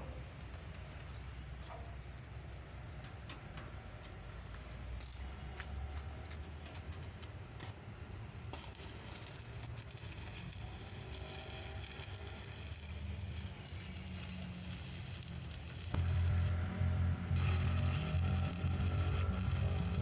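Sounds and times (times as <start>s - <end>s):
welding arc crackling: 8.5s - 16.6s, 17.3s - 20.0s.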